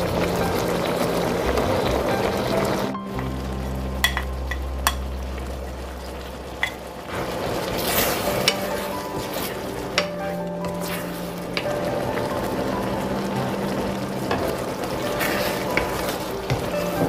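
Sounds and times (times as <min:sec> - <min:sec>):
sauce bubbling and sizzling: 0:00.0 - 0:17.0
utensils clicking against pan: 0:08.1 - 0:10.8.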